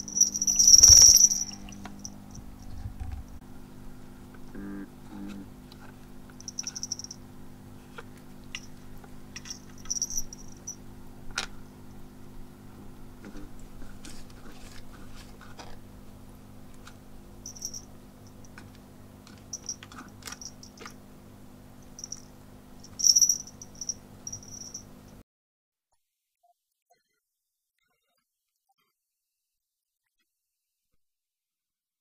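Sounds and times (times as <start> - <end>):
water fountain pump hum: 0.0 - 2.6, 3.3 - 25.0.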